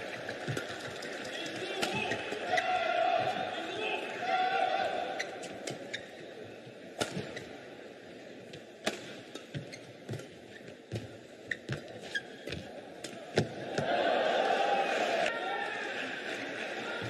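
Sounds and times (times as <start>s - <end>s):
racket hitting shuttlecock: 7.0s - 7.4s, 8.8s - 9.2s
shoe squeaks on court: 11.5s - 12.6s.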